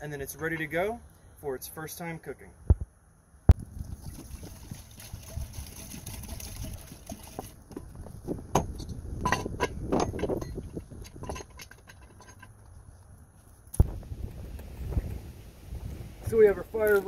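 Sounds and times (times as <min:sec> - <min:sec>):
water pouring into metal pot: 0:03.7 - 0:07.6
metal lid clinks and clanks: 0:08.6 - 0:12.5.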